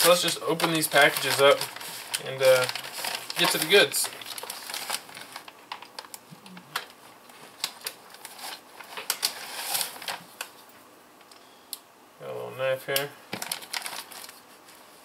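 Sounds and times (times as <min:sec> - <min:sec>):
plastic bags crinkling: 0:00.0 - 0:10.6, 0:13.3 - 0:14.7.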